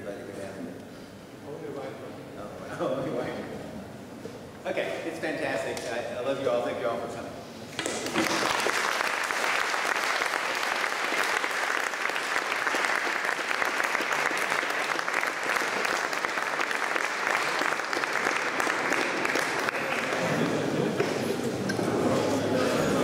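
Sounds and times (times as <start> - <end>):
audience applause: 7.8 - 21.2.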